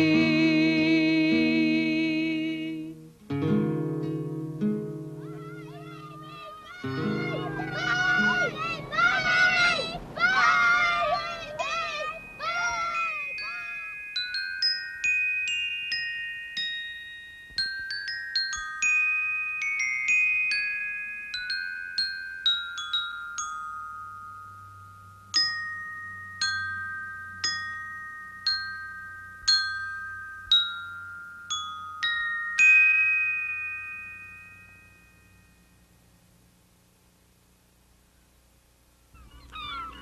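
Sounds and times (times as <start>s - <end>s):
mallet percussion melody: 12.2s - 34.8s.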